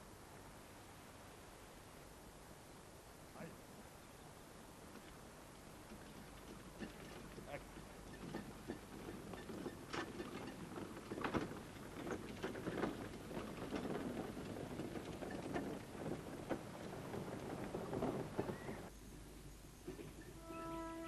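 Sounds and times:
cart rattling: 5.8 - 18.9
hoof knocks on dirt road: 5.8 - 18.9.

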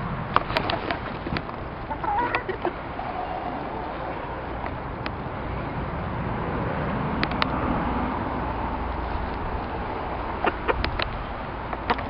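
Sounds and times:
continuous rumble and hiss: 0.0 - 12.0
sharp clicks: 10.7 - 12.0.

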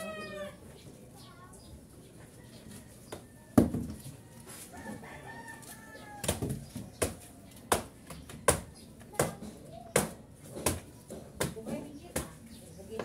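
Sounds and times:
rooster crowing: 4.3 - 6.4.

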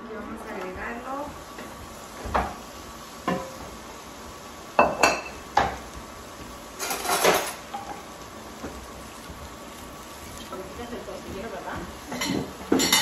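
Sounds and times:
rattle of dishes: 6.8 - 7.6
dishes and utensils clattering: 6.8 - 8.0, 12.1 - 13.0.

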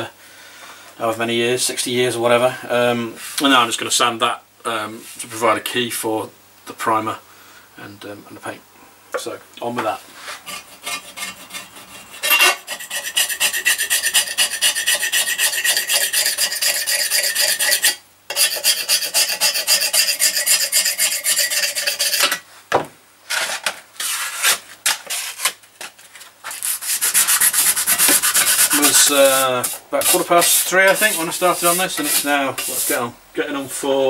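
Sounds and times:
sandpaper rubbing on metal: 10.2 - 22.4, 26.5 - 33.1.

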